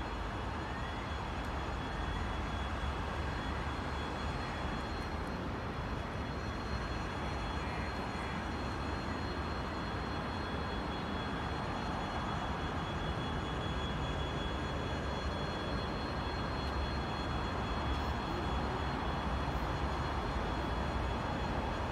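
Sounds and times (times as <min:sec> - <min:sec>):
faint steady high tone: 0:00.0 - 0:21.9.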